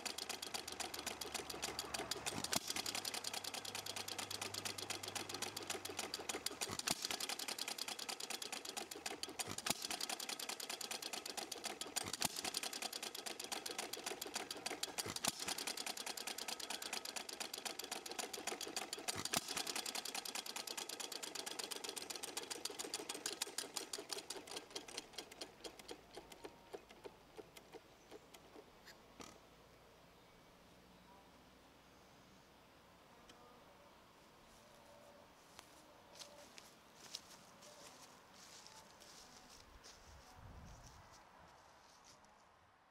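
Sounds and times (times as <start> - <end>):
engine firing stroke: 0.0 - 28.6
small engine clattering: 0.0 - 29.4.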